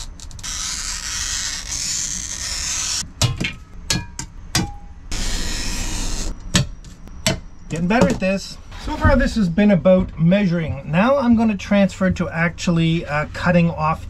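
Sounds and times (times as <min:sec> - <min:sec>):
glass cutter scoring glass: 0:00.0 - 0:03.0, 0:05.1 - 0:06.4.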